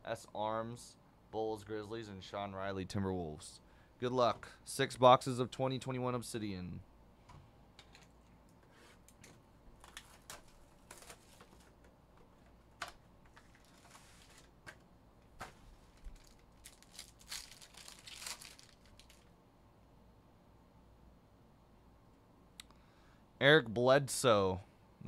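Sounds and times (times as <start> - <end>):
card pack crinkling and rustling: 9.2 - 19.3.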